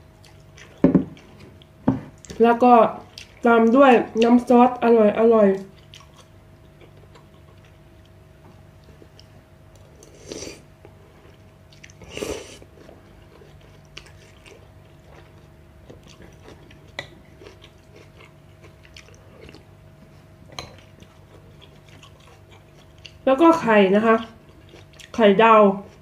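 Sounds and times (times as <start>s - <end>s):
faint steady hum: 0.0s - 26.0s
quiet chewing with clicks: 0.2s - 2.4s, 3.1s - 4.3s, 5.6s - 10.2s, 10.8s - 12.1s, 12.8s - 23.2s, 24.4s - 25.2s
person slurping noodles: 10.0s - 10.6s, 12.0s - 12.6s.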